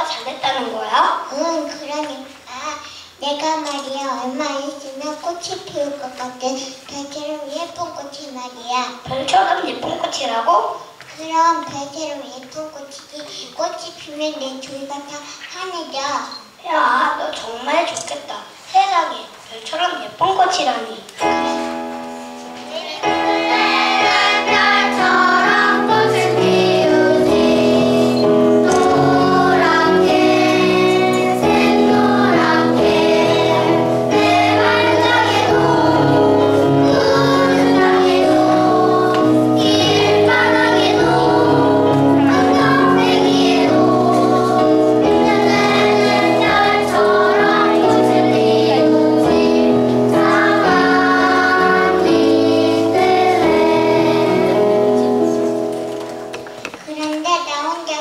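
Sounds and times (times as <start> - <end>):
instrumental accompaniment: 21.2 - 56.9
children singing: 22.6 - 55.5.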